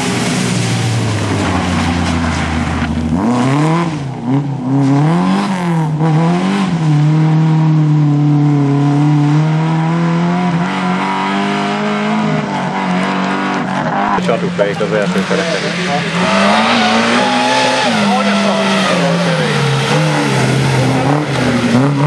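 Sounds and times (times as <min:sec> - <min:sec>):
rally car engine revving: 0:00.0 - 0:22.0.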